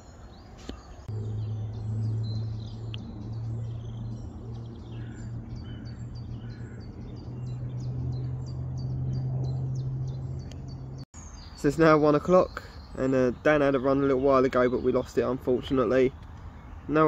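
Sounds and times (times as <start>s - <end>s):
songbirds chirping: 0.0s - 17.0s
low drone: 1.0s - 11.3s.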